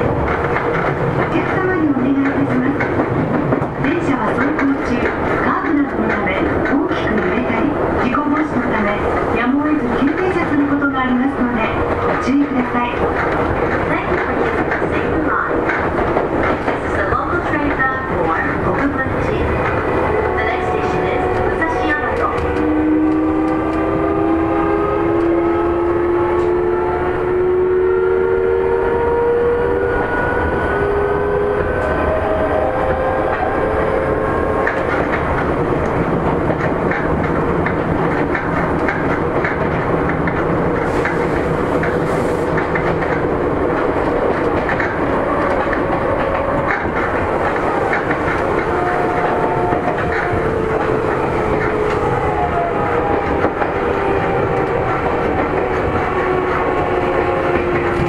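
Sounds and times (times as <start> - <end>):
wheels clicking over rail joints: 0.0 - 23.8, 34.6 - 52.4.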